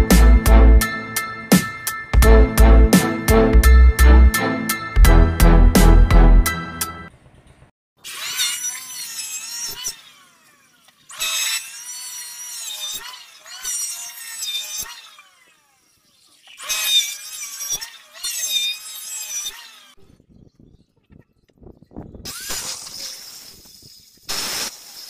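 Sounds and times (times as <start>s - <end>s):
electric hand planer cutting wood: 8.0s - 20.1s, 22.3s - 25.0s.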